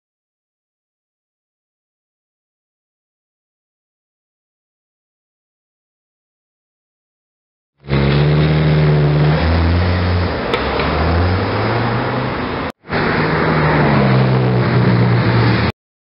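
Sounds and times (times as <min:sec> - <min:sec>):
sports car accelerating away: 0:07.8 - 0:15.7
sports car driving past: 0:07.8 - 0:15.7.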